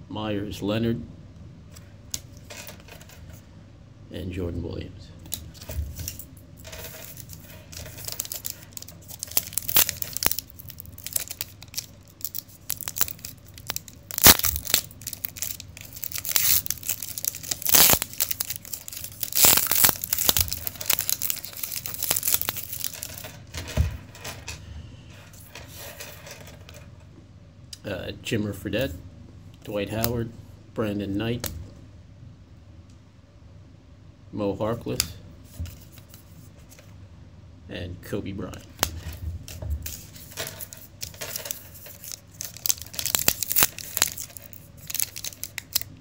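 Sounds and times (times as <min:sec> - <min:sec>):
cards being handled: 0:05.3 - 0:26.9, 0:35.5 - 0:36.9, 0:38.8 - 0:45.9
foil wrapper tearing and crinkling: 0:06.8 - 0:23.3, 0:39.8 - 0:46.0.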